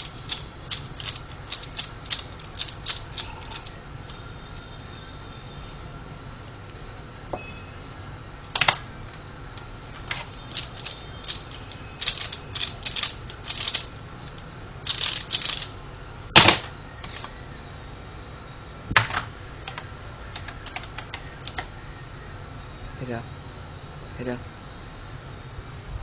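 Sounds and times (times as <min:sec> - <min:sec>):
plastic puzzle clicks: 0:00.0 - 0:04.4, 0:08.6 - 0:15.8, 0:16.4 - 0:17.3, 0:19.0 - 0:21.7.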